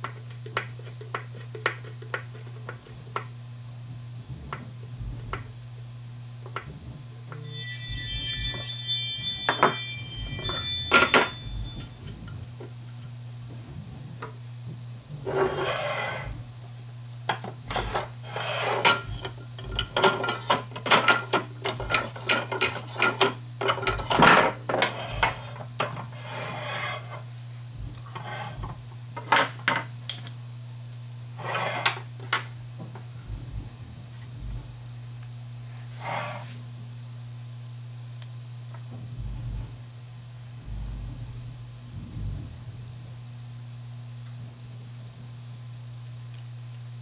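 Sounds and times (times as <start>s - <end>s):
low hum: 3.8s - 18.2s, 18.9s - 20.4s, 27.5s - 29.0s, 32.4s - 35.9s, 38.9s - 43.5s.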